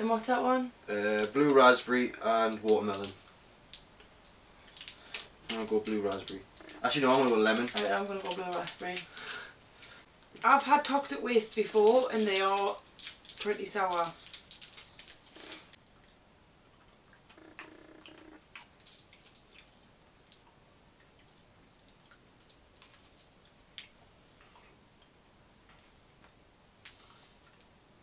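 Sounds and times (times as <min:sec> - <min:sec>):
sweet wrappers crinkling: 0:02.4 - 0:15.8, 0:18.5 - 0:20.5, 0:21.8 - 0:23.9
person sucking sweets: 0:08.4 - 0:10.0, 0:14.0 - 0:15.8.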